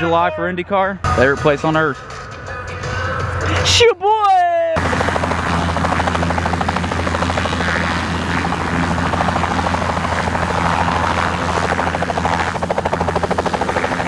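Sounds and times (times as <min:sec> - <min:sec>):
helicopter rotor chop: 0:04.8 - 0:14.0
low engine hum: 0:04.8 - 0:14.0.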